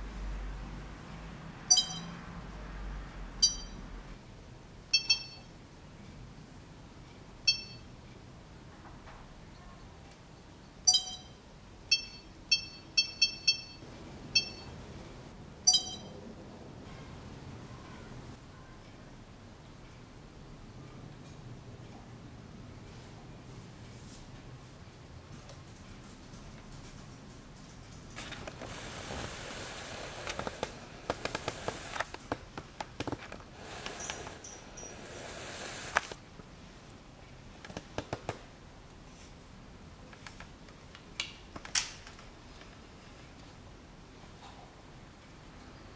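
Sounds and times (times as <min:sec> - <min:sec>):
camcorder touch-panel beeps: 0:15.7 - 0:16.1
steady hiss: 0:28.1 - 0:32.4, 0:33.4 - 0:37.2.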